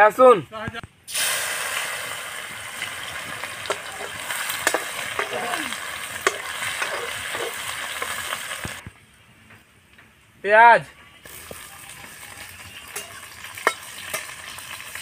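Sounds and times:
garlic sizzling in hot oil: 1.1 - 8.8, 11.3 - 15.0
metal spatula scraping a pan: 3.6 - 8.7.

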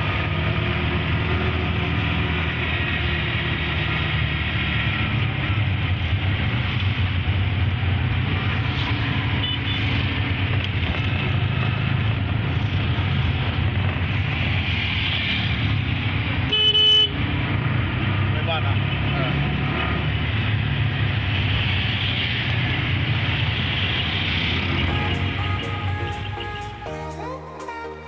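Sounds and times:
auto-rickshaws and cars passing: 0.0 - 28.0
road noise: 0.0 - 28.0
vehicle engine hum: 0.0 - 28.0.

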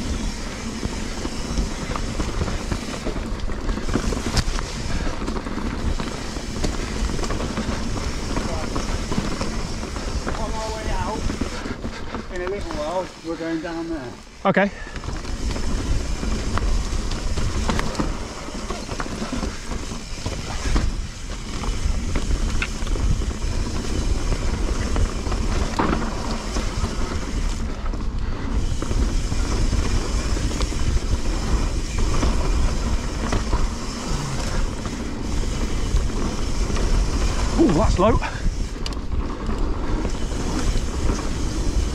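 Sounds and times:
bike clicks and rattles: 0.0 - 41.9
tyres rumbling over dirt: 0.0 - 41.9
wind buffeting microphone: 14.8 - 41.9.

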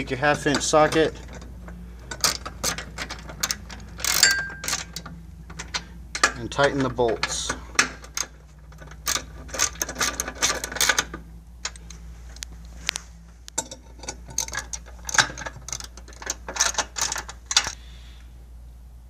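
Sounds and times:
ratchet wrench clicking: 2.1 - 5.0.

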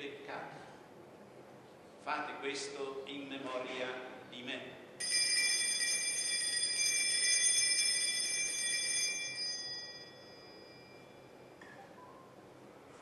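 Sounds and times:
altar bells jingling: 5.0 - 11.1.

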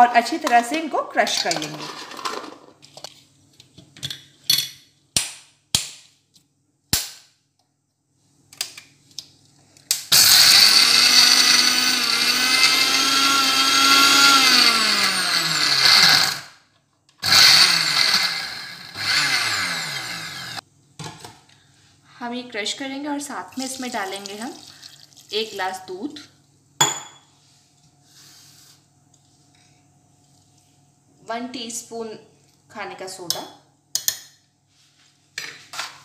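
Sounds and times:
mixer grinder whining: 10.1 - 16.6, 17.2 - 20.6.

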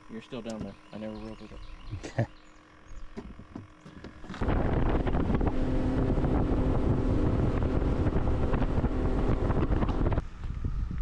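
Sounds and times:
outboard motor running: 0.0 - 10.6
wind on microphone: 4.3 - 11.0.

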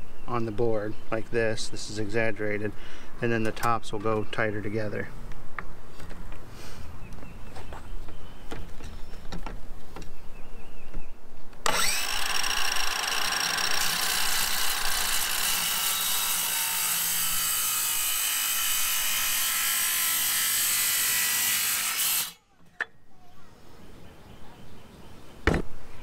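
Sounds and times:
circular saw cutting: 11.6 - 22.4.

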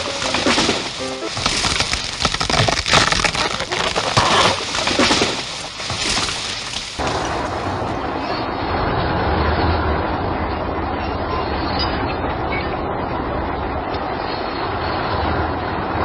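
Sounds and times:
wood cracking and splintering: 0.0 - 8.6.

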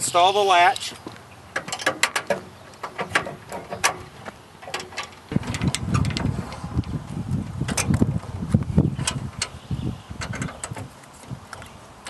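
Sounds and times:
metal latch clicking and clanking: 1.5 - 6.6, 7.7 - 8.1, 9.0 - 9.6, 10.2 - 10.9
wind rumble on microphone: 5.3 - 11.9.

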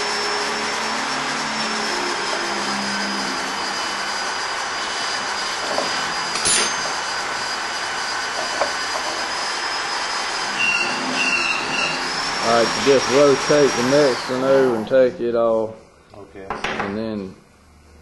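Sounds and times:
machinery humming: 0.0 - 16.5
metal scrape: 4.8 - 7.2.

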